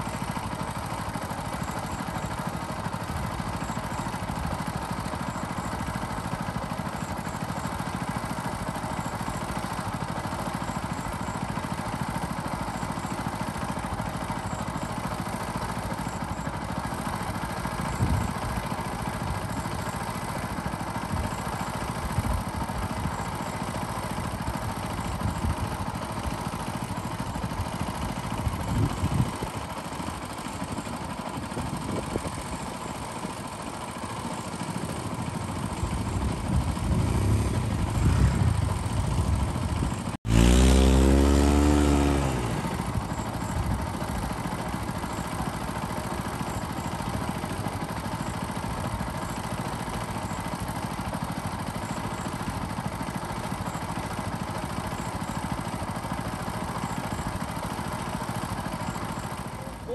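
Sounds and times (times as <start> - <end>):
engine running: 0.0 - 59.9
engine sweeping down in pitch: 36.4 - 43.1.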